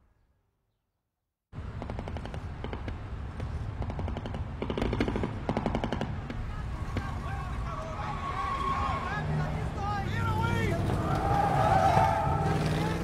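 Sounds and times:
car driving rumble: 6.2s - 13.0s.

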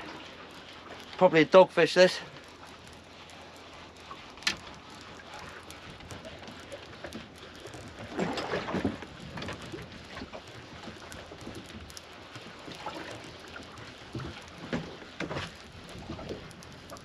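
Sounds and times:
wind and sea noise: 0.0s - 17.0s.

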